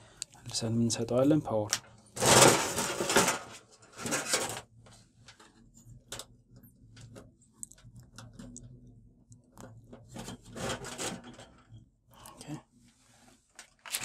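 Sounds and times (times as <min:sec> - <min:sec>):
metal panel rustling and scraping: 0:02.2 - 0:05.6, 0:09.7 - 0:11.9.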